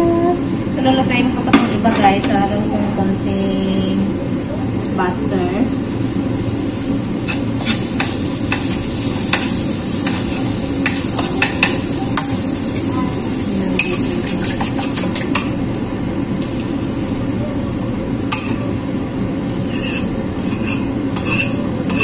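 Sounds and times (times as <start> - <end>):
butter sizzling in frying pan: 5.7 - 15.7.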